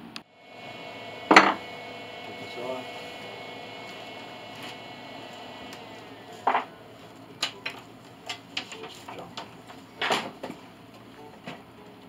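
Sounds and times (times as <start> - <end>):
high whine falling in pitch: 0.2 - 8.6.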